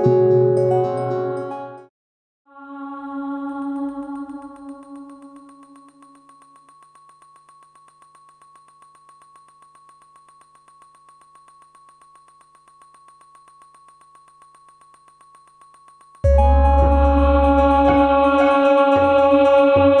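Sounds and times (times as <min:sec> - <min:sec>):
high tone with soft pulse: 0:03.3 - 0:20.0
synthesizer chord over deep bass: 0:16.3 - 0:20.0.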